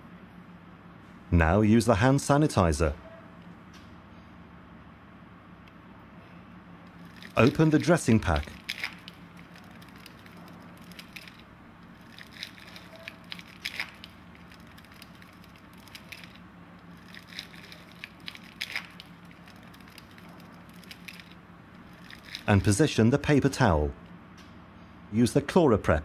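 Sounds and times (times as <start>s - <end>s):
plastic and paper wrapper crinkling: 7.0s - 22.7s.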